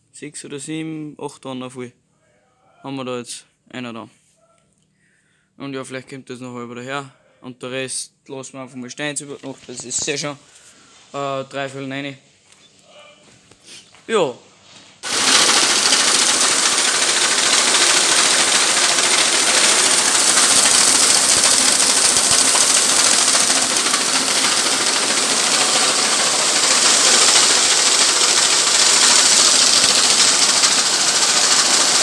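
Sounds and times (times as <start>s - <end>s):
grain pouring from auger: 15.0s - 32.0s.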